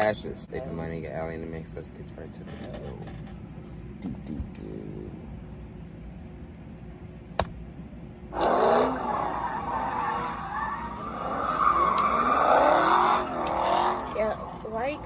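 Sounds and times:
sharp click: 7.4 - 7.6
car tires squealing: 8.3 - 14.7
car engine revving: 8.3 - 15.0.

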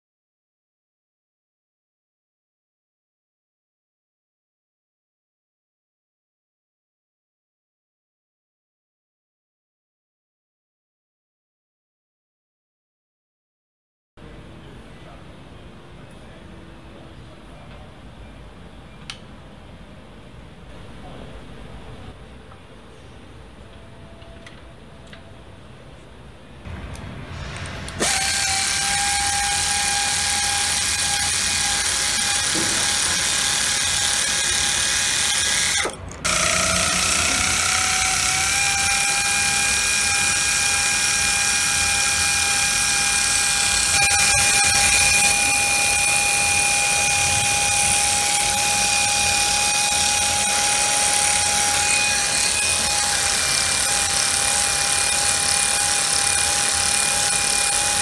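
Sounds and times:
pneumatic ratchet whining: 26.9 - 58.0.

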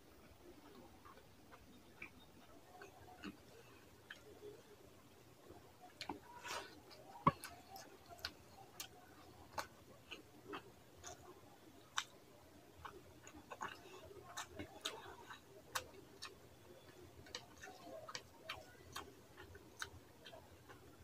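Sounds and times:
lip smacks and chewing clicks: 11.9 - 12.2, 12.8 - 21.0.

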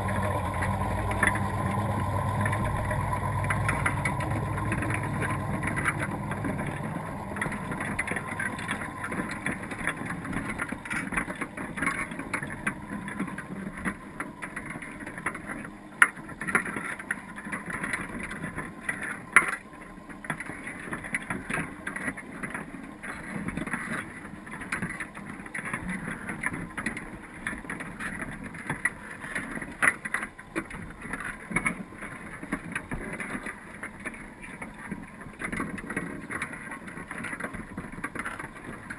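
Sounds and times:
low rumble: 0.0 - 10.9
underwater water noise: 0.0 - 15.9
small underwater clicks and crackles: 0.0 - 38.9.

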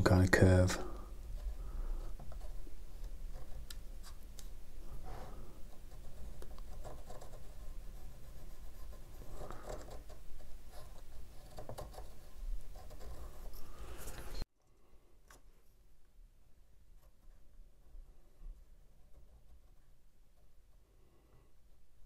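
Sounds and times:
pencil scratching on paper: 1.2 - 4.3, 4.9 - 14.4.

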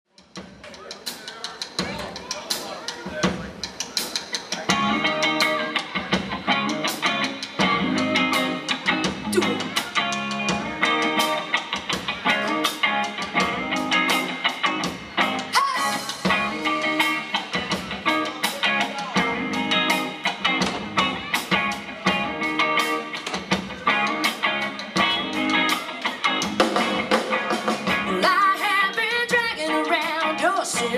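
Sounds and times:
drum kit beat: 0.1 - 30.9
electric guitars: 3.3 - 30.9
bass guitar: 4.6 - 30.9.

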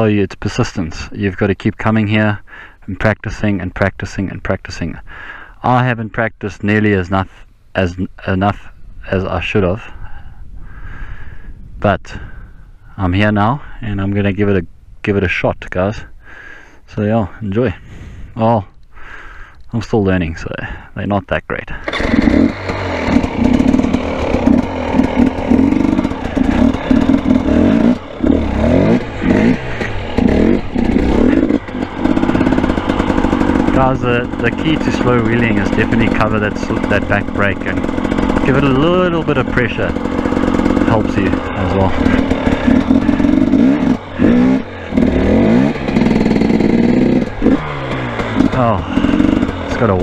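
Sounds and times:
dirt bike engine revving: 21.7 - 50.0.

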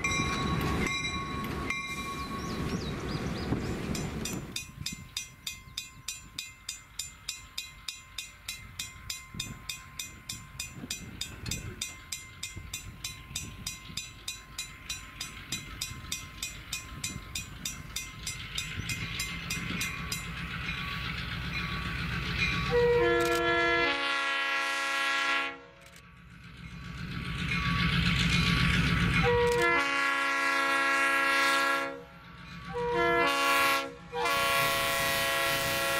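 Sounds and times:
locomotive engine: 0.0 - 35.9
locomotive horn chord: 22.6 - 25.9, 29.2 - 35.9.

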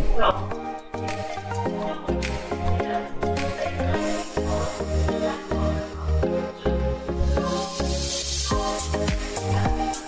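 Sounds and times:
background music with beat: 0.0 - 10.0
hissing swell: 3.7 - 6.2.

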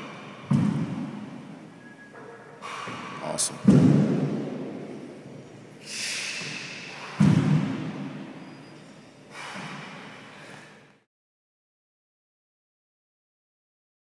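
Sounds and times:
man breathing hard: 5.8 - 7.5, 9.3 - 10.9.

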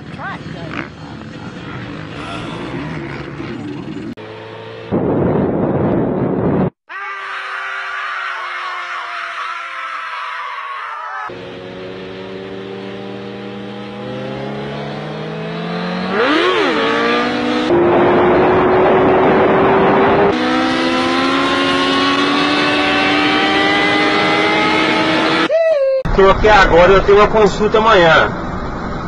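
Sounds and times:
motorcycle engine accelerating: 0.0 - 6.7, 11.3 - 25.5
wind noise rushing: 4.9 - 6.8, 17.3 - 22.2.

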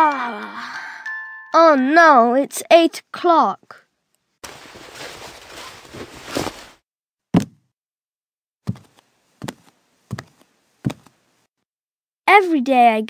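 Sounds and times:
bedclothes rustling swish: 4.4 - 6.8
footsteps: 4.4 - 6.8, 8.7 - 11.2.

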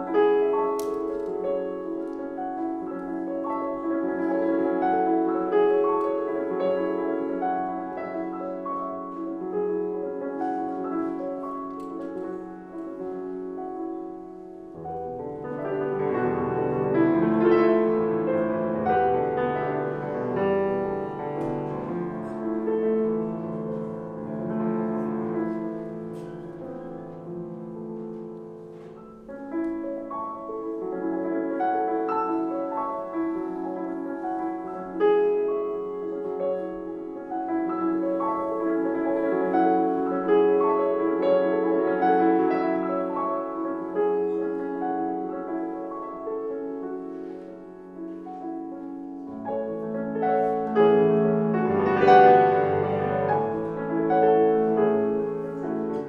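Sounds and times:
solo grand piano classical music: 0.0 - 56.0.

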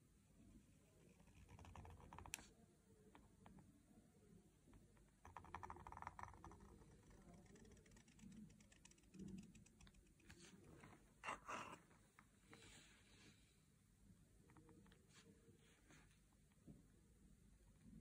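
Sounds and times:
pen nib scratching paper: 1.0 - 2.5, 5.4 - 10.6.

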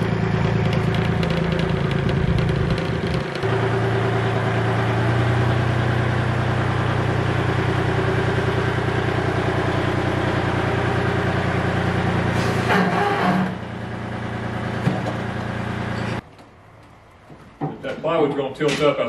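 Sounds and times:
tractor engine idling: 0.0 - 17.3
clunk: 14.8 - 18.0.

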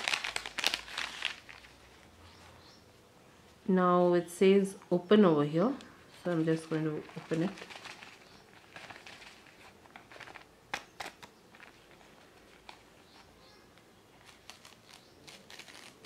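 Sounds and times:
paper sachet rustling: 0.0 - 2.1, 6.1 - 13.2, 14.2 - 16.0.

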